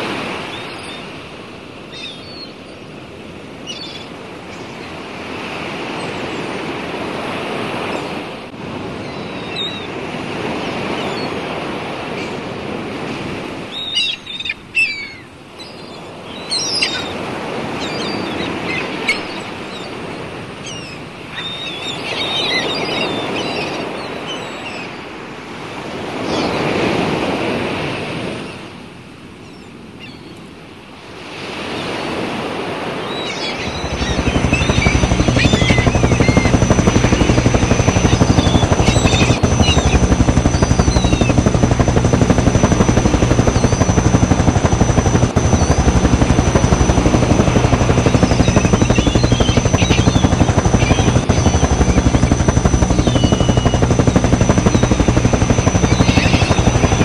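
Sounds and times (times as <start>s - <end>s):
high bird calls: 33.2s - 57.0s.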